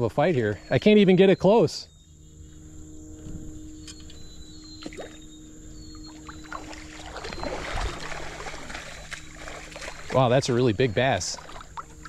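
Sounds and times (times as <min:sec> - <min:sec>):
water splashing and sloshing: 0:04.8 - 0:05.3, 0:06.0 - 0:12.0.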